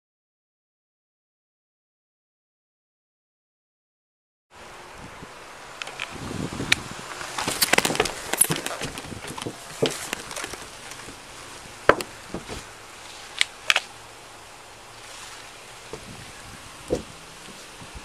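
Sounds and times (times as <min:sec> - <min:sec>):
gear rattling: 0:07.2 - 0:13.9
hands and boots knocking car body: 0:11.9 - 0:12.6.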